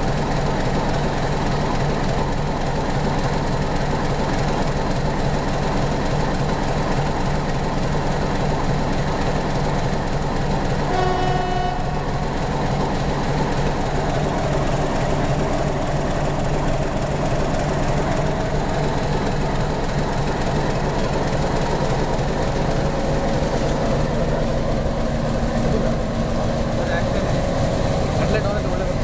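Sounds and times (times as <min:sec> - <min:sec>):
diesel locomotive idling: 0:00.0 - 0:29.0
short pitched tone: 0:10.9 - 0:12.5.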